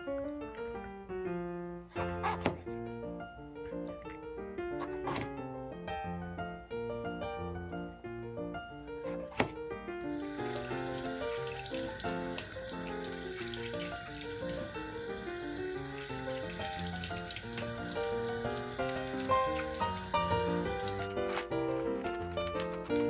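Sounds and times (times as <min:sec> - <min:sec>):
piano music: 0:00.0 - 0:23.0
knife knocking on cutting board: 0:09.3 - 0:09.6
tap water running into sink: 0:10.1 - 0:21.4.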